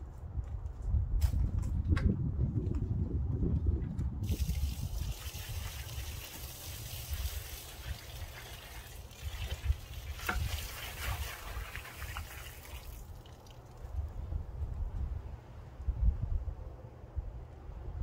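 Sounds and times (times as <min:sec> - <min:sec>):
water pouring from bucket: 0:04.2 - 0:13.9
water splashing on gravel and concrete: 0:04.2 - 0:14.0.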